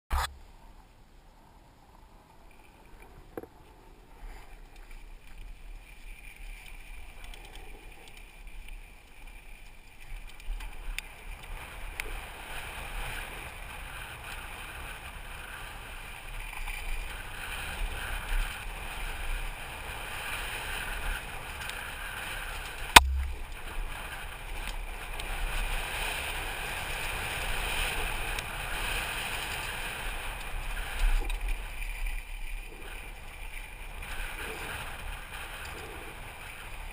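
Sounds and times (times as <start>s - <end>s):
bike rattling over dirt trail: 2.5s - 36.9s
sharp knock: 23.0s - 23.4s.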